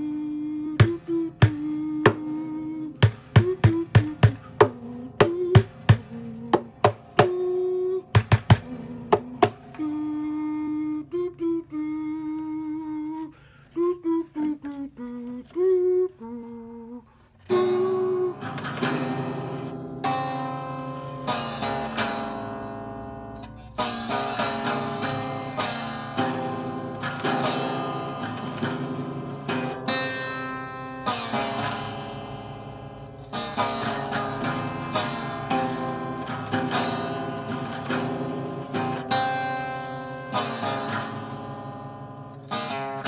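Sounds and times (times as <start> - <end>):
man humming: 0.0 - 19.6
acoustic guitar: 0.0 - 43.0
sharp rhythmic knocks: 0.8 - 9.8.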